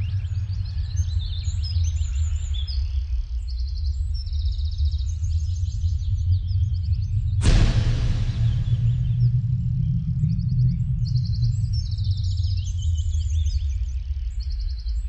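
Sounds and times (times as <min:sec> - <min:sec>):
sudden loud hit: 0:07.4 - 0:11.2
low rumbling drone: 0:07.4 - 0:13.1.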